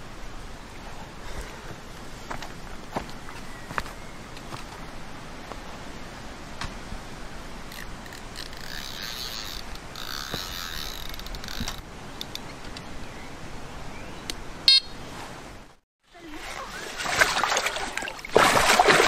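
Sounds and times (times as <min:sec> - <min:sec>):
fishing reel winding: 0:07.7 - 0:11.8
bite alarm beep: 0:14.7 - 0:15.0.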